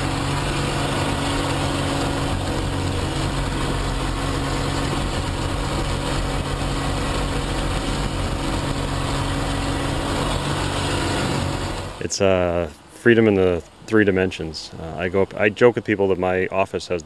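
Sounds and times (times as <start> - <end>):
plane engine and propeller: 0.0 - 12.1
rush of airflow: 0.0 - 12.1.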